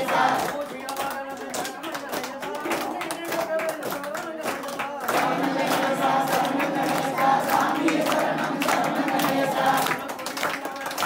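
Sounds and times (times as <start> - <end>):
group singing devotional song: 0.0 - 1.2, 5.0 - 10.9
hand claps: 0.0 - 11.0.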